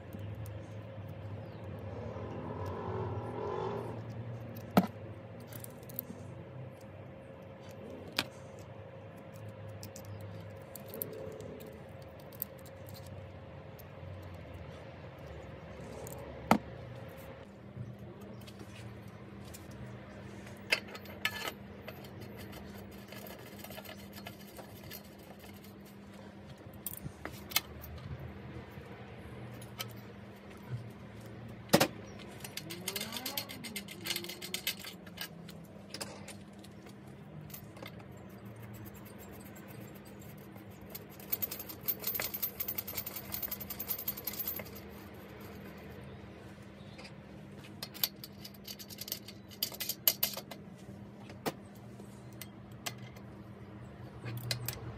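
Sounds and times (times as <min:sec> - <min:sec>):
metal clicks and clinks: 0:08.2 - 0:14.6, 0:32.0 - 0:46.1, 0:47.8 - 0:50.6.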